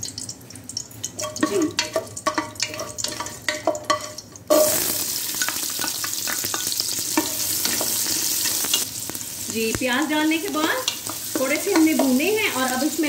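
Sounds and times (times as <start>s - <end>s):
onions sizzling in hot oil: 0.0s - 13.0s
wooden spoon scraping metal pot: 1.2s - 8.9s.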